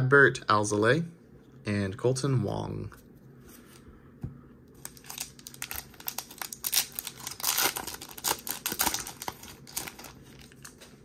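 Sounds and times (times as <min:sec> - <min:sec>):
foil wrapper crinkling and tearing: 0:04.8 - 0:10.9.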